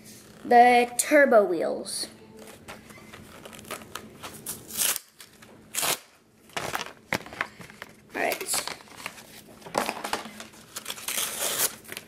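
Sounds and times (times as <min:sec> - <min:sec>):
plastic packaging crinkling: 0:02.4 - 0:12.0.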